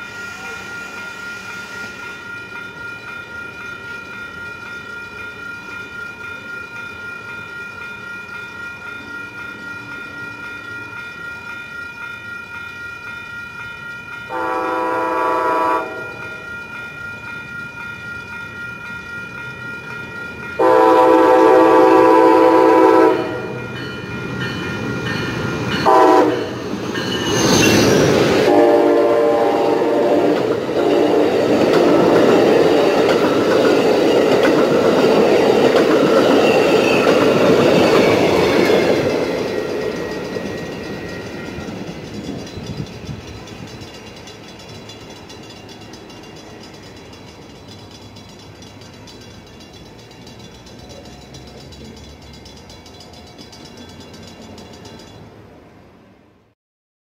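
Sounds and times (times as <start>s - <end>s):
grade crossing bells ringing: 0.0s - 55.8s
train passing with rushing rumble: 0.0s - 56.5s
train horn: 14.3s - 16.4s, 20.6s - 23.7s, 25.8s - 26.6s, 28.4s - 32.0s.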